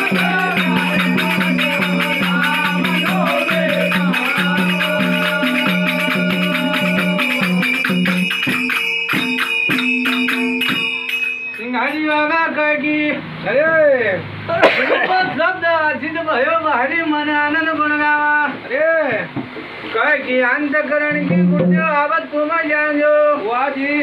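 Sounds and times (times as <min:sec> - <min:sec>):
person singing: 0:00.0 - 0:08.3
sustained drone: 0:00.0 - 0:08.8
hand drum: 0:00.0 - 0:11.7, 0:21.2 - 0:22.0
jingling metal percussion: 0:00.0 - 0:12.6.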